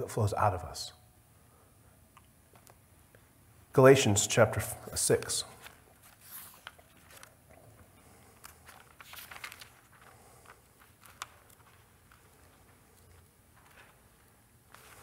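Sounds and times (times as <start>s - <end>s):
pages rustling: 4.9s - 15.0s.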